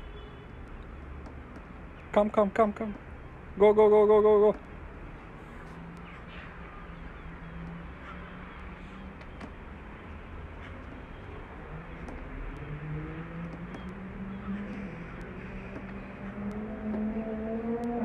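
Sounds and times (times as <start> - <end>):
traffic noise: 0.0 - 18.0
low engine hum: 5.2 - 18.0
faint ticks: 13.5 - 17.0.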